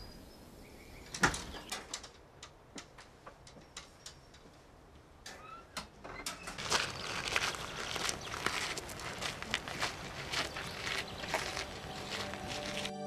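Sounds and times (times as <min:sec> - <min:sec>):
wooden door clicking open: 0:01.1 - 0:02.1
footsteps on wooden floor: 0:06.6 - 0:12.9.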